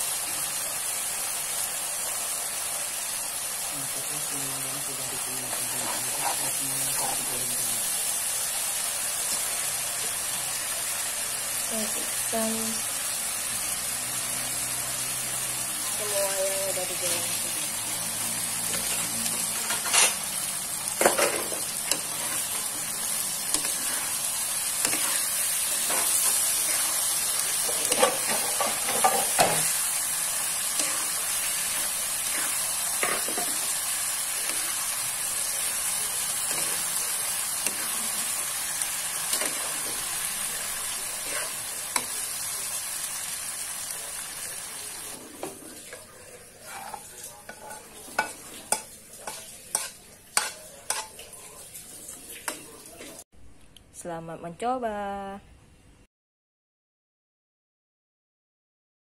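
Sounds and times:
sauce sizzling in a wok: 0.0s - 53.2s
spatula scraping and knocking wok: 18.6s - 40.3s, 41.0s - 42.3s, 46.6s - 51.2s.

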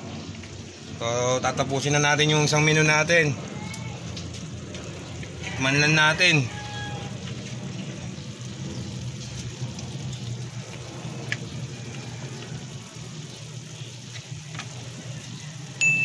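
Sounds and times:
broth bubbling: 7.0s - 15.8s.

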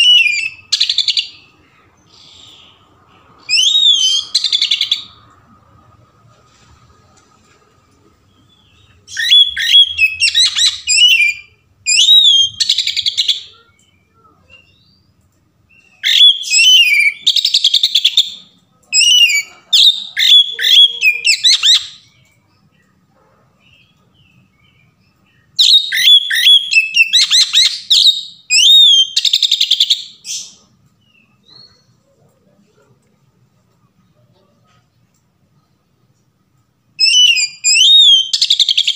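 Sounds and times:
bird singing whistles and trills: 0.0s - 1.4s, 3.4s - 5.1s, 8.7s - 15.0s, 15.7s - 18.4s, 19.0s - 22.3s, 24.6s - 31.9s, 37.0s - 38.9s.

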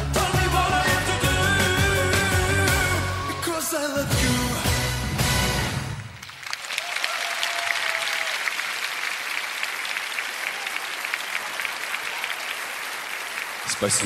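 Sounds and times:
pop song with heavy bass: 0.0s - 5.9s
audience applause: 6.0s - 14.0s.

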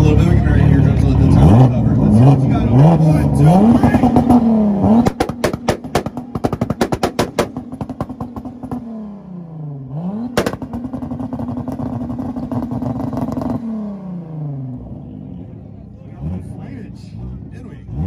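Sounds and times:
car engine on rev limiter: 0.0s - 18.0s
exhaust banging and popping: 1.0s - 9.1s, 10.1s - 13.7s.

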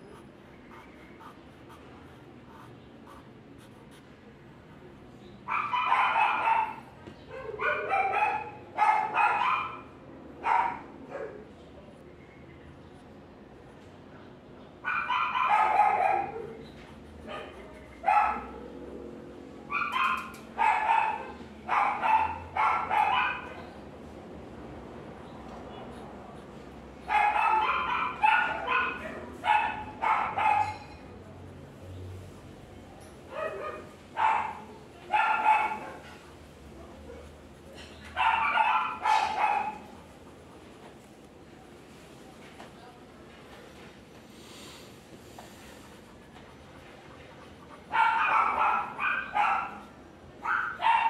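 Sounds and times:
dog barking: 5.4s - 11.5s, 14.8s - 18.8s, 19.7s - 23.7s, 27.0s - 30.9s, 33.3s - 36.2s, 38.2s - 40.0s, 47.8s - 51.0s.

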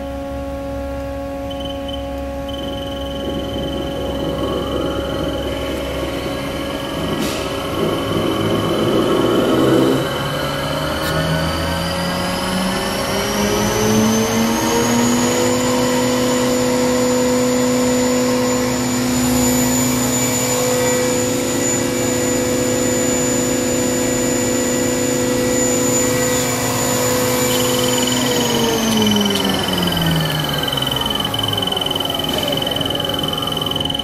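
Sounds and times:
machine spindle whine: 0.0s - 34.0s.

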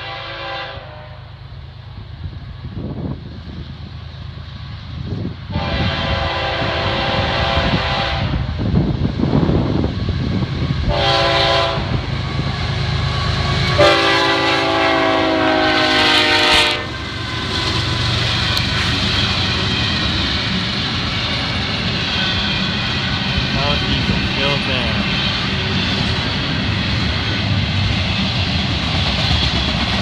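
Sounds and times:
train air horn: 0.0s - 1.4s, 5.5s - 8.6s, 10.9s - 12.1s, 13.4s - 17.0s
diesel engines rumbling: 8.4s - 30.0s.

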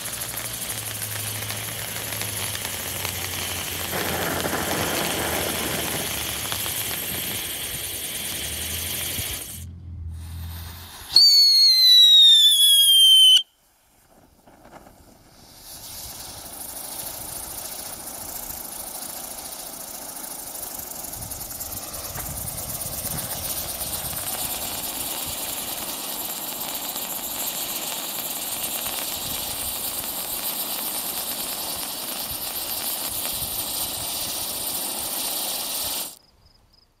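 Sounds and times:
firework hissing sparks: 0.0s - 36.2s
firework whistle falling in pitch: 10.2s - 13.6s.

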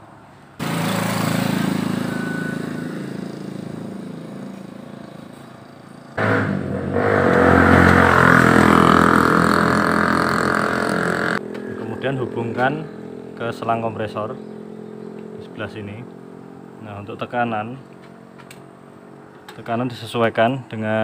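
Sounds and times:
loud engine with hiss: 0.6s - 12.0s
vehicle engine running: 0.6s - 19.5s.

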